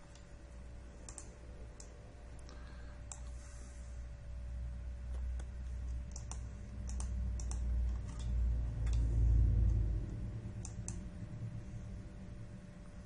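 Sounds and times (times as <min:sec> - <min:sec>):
mouse and keyboard clicks: 0:01.0 - 0:01.9, 0:05.1 - 0:09.1, 0:10.6 - 0:11.0
low rumble: 0:04.3 - 0:13.0.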